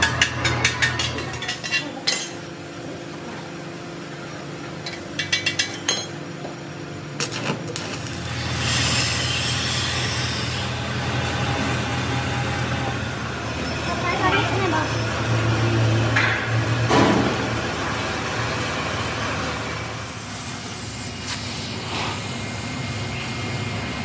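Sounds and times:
hiss: 20.1 - 24.0.

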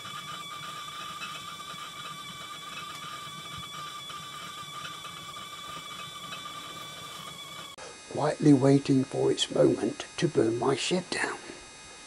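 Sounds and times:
fire crackling in stove: 0.0 - 7.8
kettle whistling: 0.0 - 9.3.

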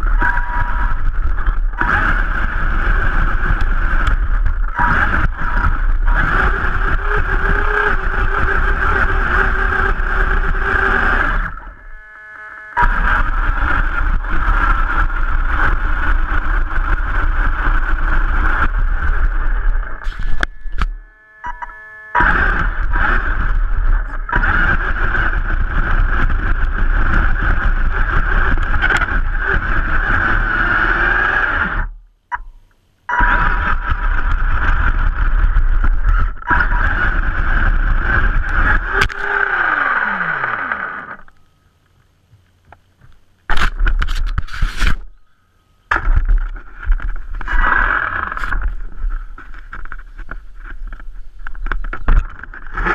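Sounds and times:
rc truck motor whine: 0.0 - 32.0, 33.1 - 41.5, 45.9 - 52.9
tyres on dirt: 0.0 - 52.9.

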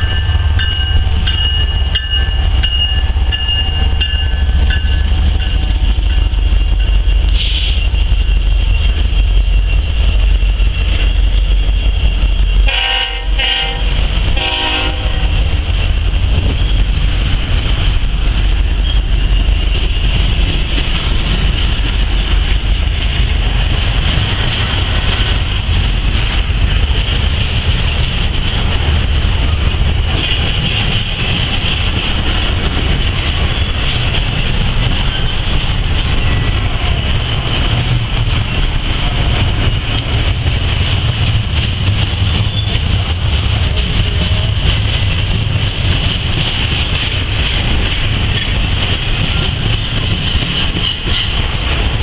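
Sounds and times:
freight train wheels rumbling: 0.0 - 52.0
train horn blasts: 12.6 - 15.4.

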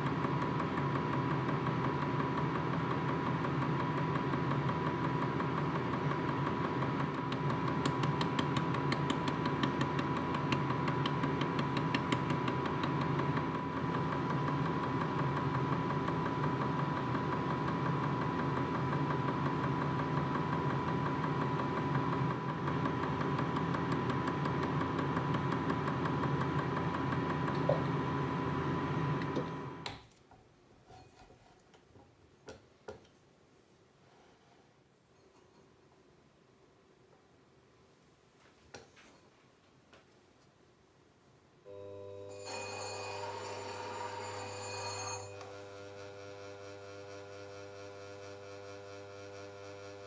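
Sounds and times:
electric machine humming and whining: 0.0 - 29.9, 41.7 - 50.0.

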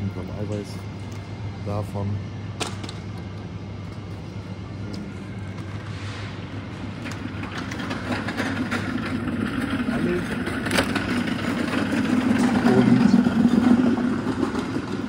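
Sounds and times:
refrigerated cases humming: 0.0 - 15.0
shopping cart rattling: 7.2 - 15.0.

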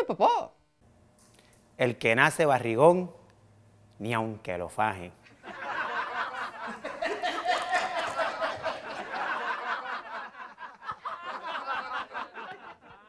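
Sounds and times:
people laughing: 5.2 - 13.0.

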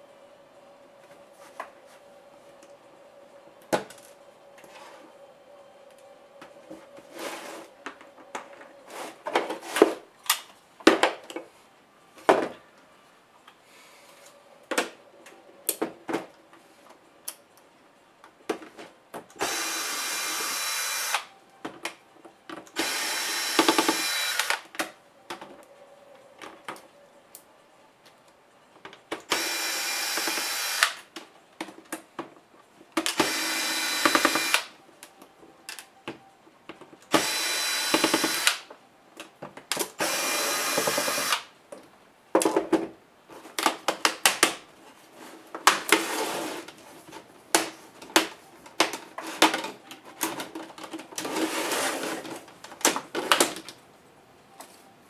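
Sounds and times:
cordless drill spinning screws: 19.4 - 21.2, 22.8 - 24.6, 29.3 - 31.0, 33.2 - 34.6, 37.2 - 38.6, 40.0 - 41.4.

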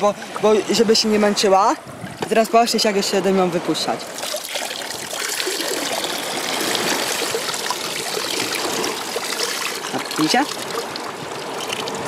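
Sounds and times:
water trickling from plastic cup: 4.1 - 12.0.

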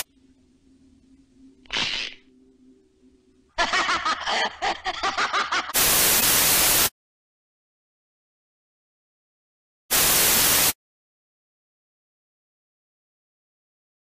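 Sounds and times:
faint low hum: 0.0 - 5.1
cackling laugh-like voice: 3.6 - 5.8
loud tv static: 5.8 - 6.9, 9.9 - 10.8
short hiss: 5.8 - 6.9.

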